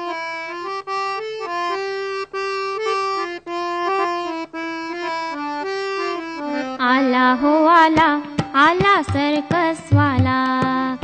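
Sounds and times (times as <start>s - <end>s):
instrumental melody: 0.0s - 11.0s.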